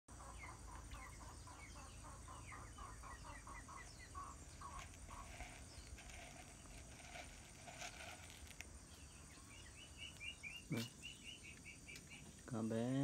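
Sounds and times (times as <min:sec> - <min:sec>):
chicken clucking: 0:00.1 - 0:08.0.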